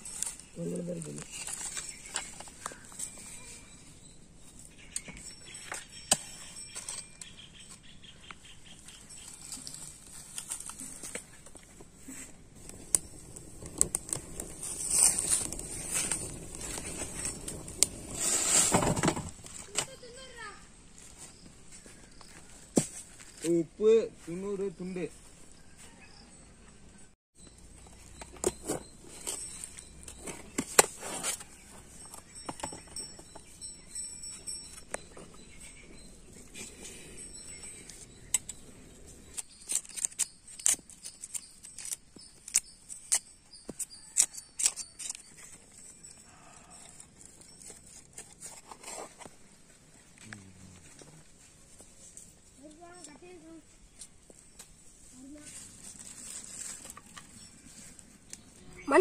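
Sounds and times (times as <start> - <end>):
kindling sticks clicking and rustling: 0.0 - 3.7, 4.4 - 20.4, 27.8 - 59.0
leaves burning crackle: 12.0 - 18.8, 54.6 - 58.5.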